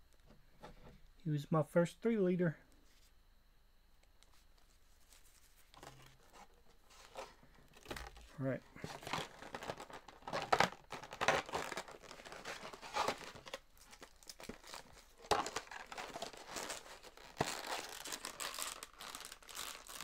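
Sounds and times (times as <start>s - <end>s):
plastic packaging crinkling: 5.2s - 20.0s.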